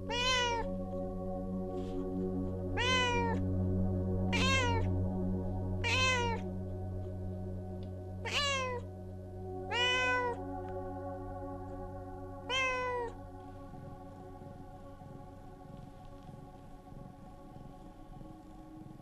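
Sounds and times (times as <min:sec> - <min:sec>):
cat meowing loudly: 0:00.1 - 0:00.7, 0:02.8 - 0:03.4, 0:04.4 - 0:04.9, 0:05.8 - 0:06.4, 0:08.2 - 0:08.8, 0:09.7 - 0:10.4, 0:12.5 - 0:13.1.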